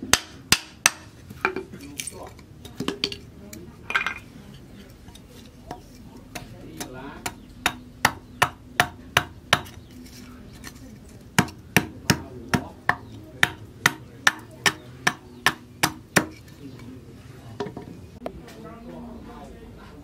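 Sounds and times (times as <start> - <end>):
hatchet chopping wood: 0.0 - 1.7, 6.3 - 9.8, 11.3 - 16.4.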